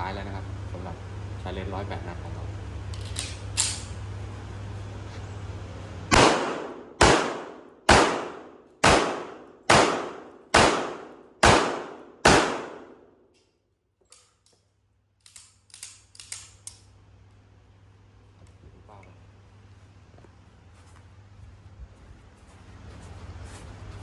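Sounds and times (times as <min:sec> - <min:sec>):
pistol shots: 0:06.1 - 0:13.1.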